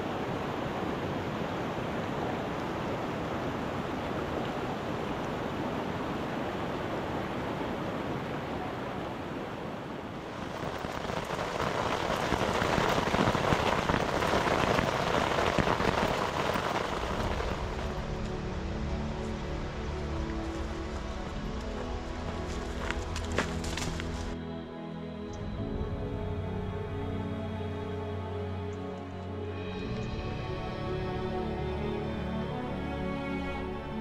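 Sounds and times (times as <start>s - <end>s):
creek rushing over boulders: 0.0s - 24.4s
rain pattering on a tent: 0.0s - 24.4s.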